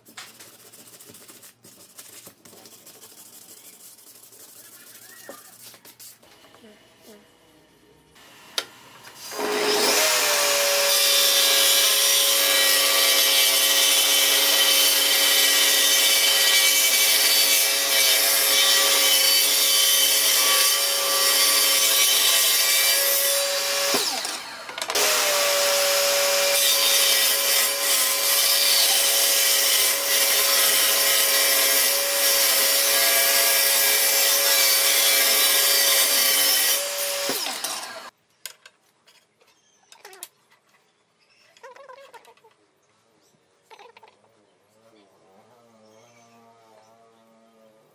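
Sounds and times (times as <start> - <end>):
table saw ripping wood: 9.1 - 38.1.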